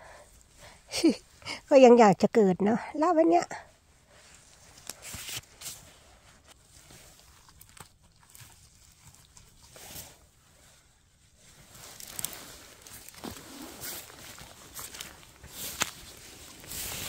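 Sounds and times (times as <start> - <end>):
leaves and twigs crackling: 11.4 - 17.0.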